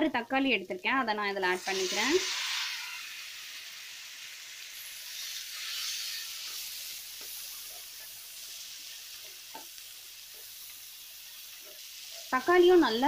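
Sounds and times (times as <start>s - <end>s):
vegetables sizzling in oil: 0.0s - 13.0s
wooden spatula scraping a pan: 5.1s - 10.7s.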